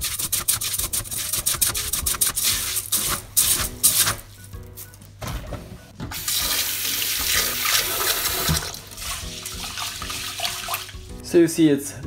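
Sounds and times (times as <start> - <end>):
tap water running into pot: 6.1 - 11.1.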